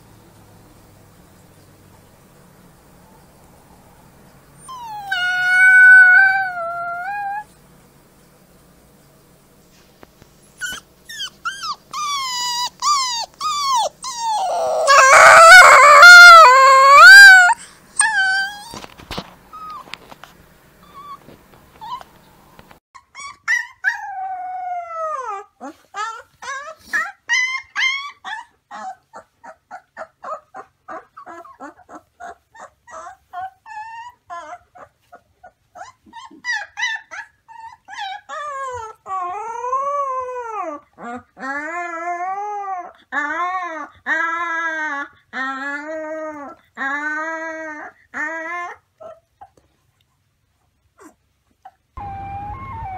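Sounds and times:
puppies howling: 4.6s - 7.5s, 10.6s - 18.8s, 52.0s - 52.9s
puppies yipping and whimpering: 4.6s - 7.5s, 10.6s - 18.9s, 20.8s - 22.2s, 23.0s - 49.6s, 51.0s - 52.9s.

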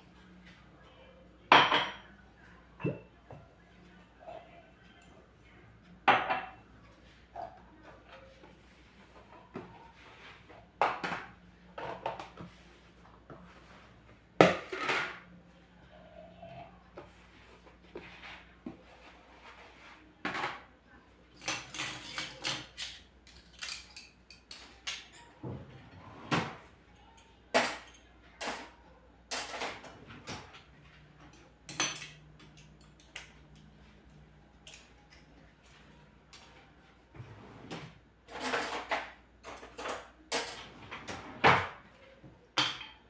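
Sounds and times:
dishes and cutlery clinking: 1.5s - 2.2s, 2.8s - 3.4s, 5.8s - 12.6s, 21.3s - 33.7s.

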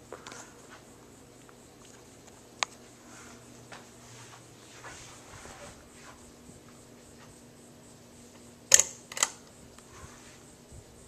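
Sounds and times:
ceiling fan humming: 0.0s - 11.0s
sharp clicks: 8.7s - 9.5s.

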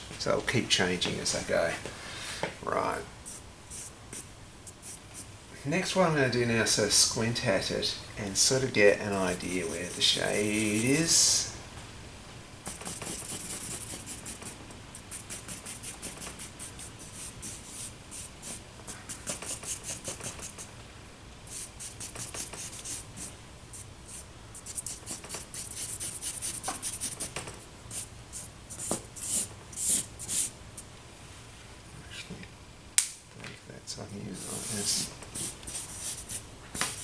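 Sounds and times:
charcoal scratching on paper: 3.3s - 5.3s, 9.5s - 11.1s, 12.6s - 20.7s, 21.5s - 30.5s, 34.4s - 37.0s.

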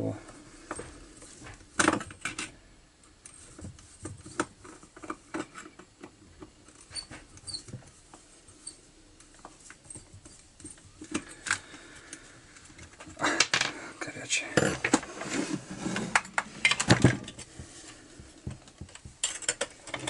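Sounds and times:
small metal clicks and knocks: 18.5s - 20.0s.

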